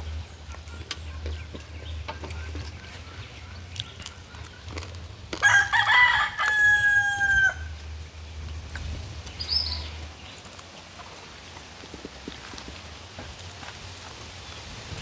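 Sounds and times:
rooster crowing: 5.4 - 7.8.

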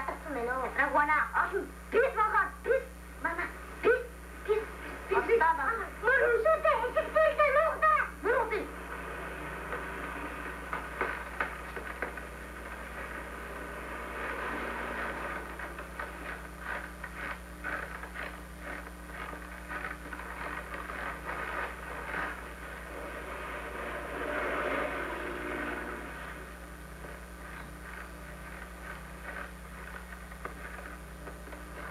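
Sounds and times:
low hum and hiss: 0.0 - 31.9
irregular crackles: 8.8 - 31.9.

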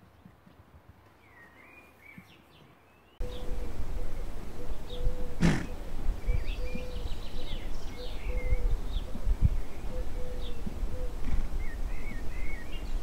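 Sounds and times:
birds chirping: 0.0 - 13.0
steady hum: 3.2 - 9.8
wind rumbling on microphone: 3.2 - 13.0.

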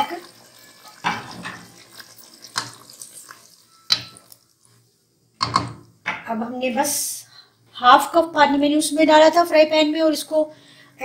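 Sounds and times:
spoon stirring sloshing liquid: 0.2 - 4.8
spoon knocking against pot: 3.9 - 4.3, 5.4 - 6.2.

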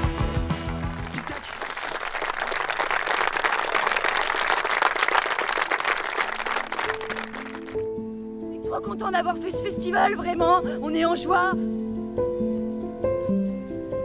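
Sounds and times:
music: 0.0 - 1.4, 6.6 - 14.0
audience applauding: 0.9 - 7.8.

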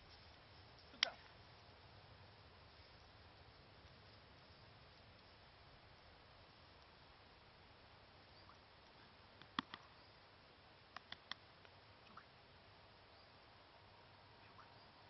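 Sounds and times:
faint high-pitched peeps: 8.2 - 9.2, 14.3 - 15.0.

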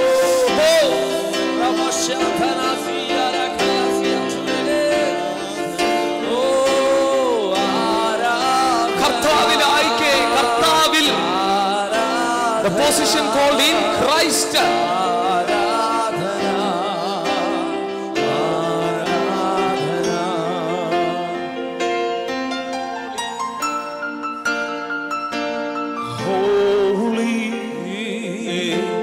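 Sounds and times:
men singing worship song: 0.0 - 21.6, 26.0 - 29.0
keyboard sustained chords: 0.0 - 29.0.

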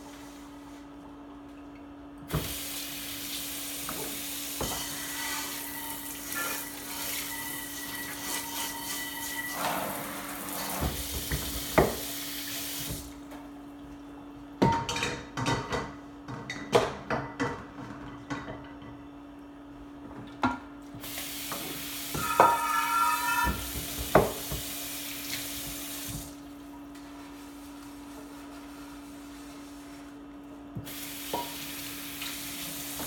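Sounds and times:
tap running into sink: 10.5 - 13.1, 23.4 - 26.4, 30.8 - 33.0
cookware clanking: 22.2 - 23.7.

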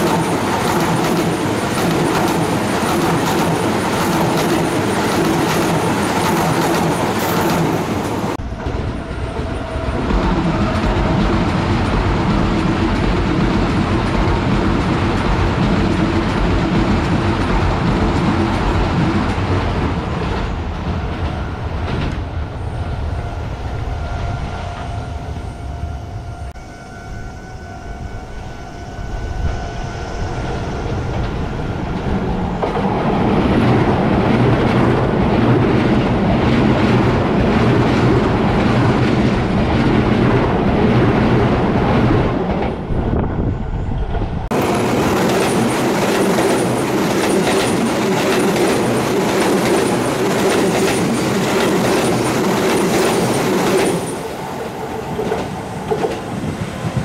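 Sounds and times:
train wheels clattering over rails: 0.0 - 22.3, 44.5 - 57.0.

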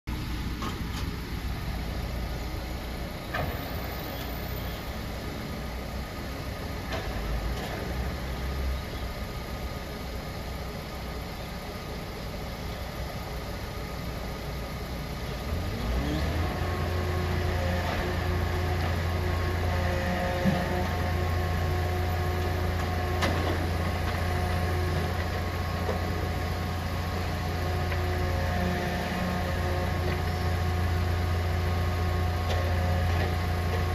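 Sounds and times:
truck engine idling: 0.1 - 33.9
hydraulic pump whine: 15.4 - 33.9.

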